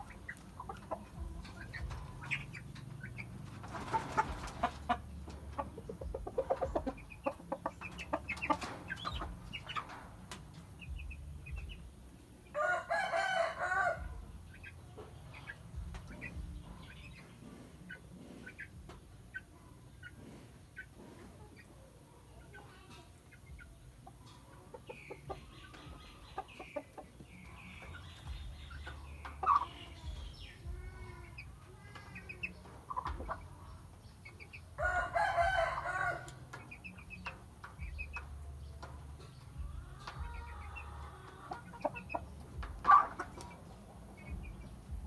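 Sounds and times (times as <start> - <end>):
rooster clucking: 0.0 - 9.5
rooster crowing: 12.6 - 14.0, 34.8 - 36.3.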